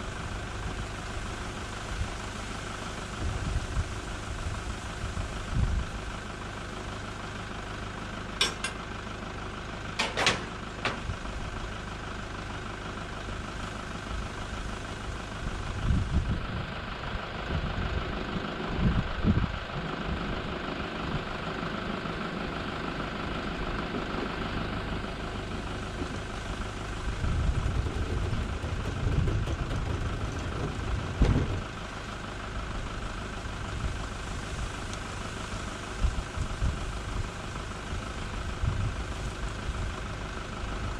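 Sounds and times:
wind buffeting microphone: 15.5s - 16.7s, 27.0s - 31.8s.

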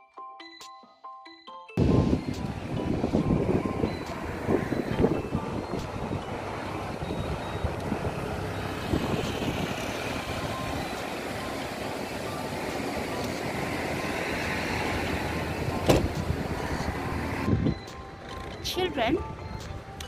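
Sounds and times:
wind on microphone: 1.8s - 10.8s.

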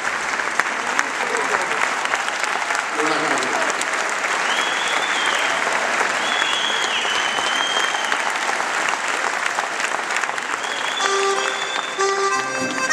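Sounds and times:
audience applauding: 0.0s - 12.9s
high whistles: 4.4s - 5.6s, 6.2s - 8.3s, 10.6s - 12.3s.

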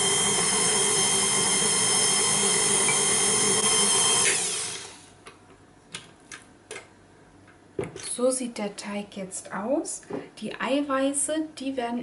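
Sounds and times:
stand mixer motor whine: 0.0s - 5.1s.

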